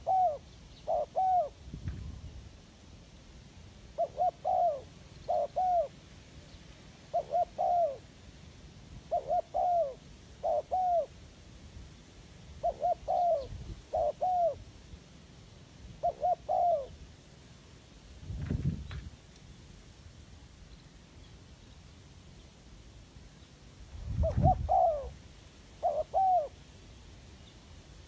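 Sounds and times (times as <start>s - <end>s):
dove cooing: 0.0s - 1.6s, 3.9s - 6.0s, 7.0s - 8.2s, 9.0s - 11.2s, 12.6s - 14.7s, 16.0s - 17.0s, 24.1s - 26.6s.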